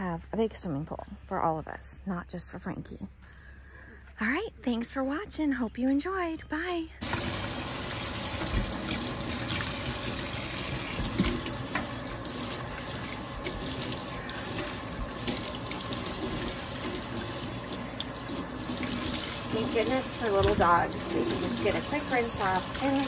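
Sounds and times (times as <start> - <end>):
faucet running into sink: 7.0 - 23.0.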